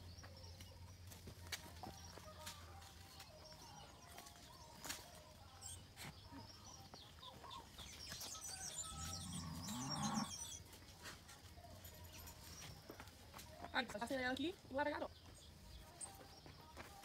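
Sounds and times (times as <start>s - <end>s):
birds chirping: 0.0s - 11.0s, 11.8s - 17.0s
low-pitched animal call: 8.7s - 10.6s.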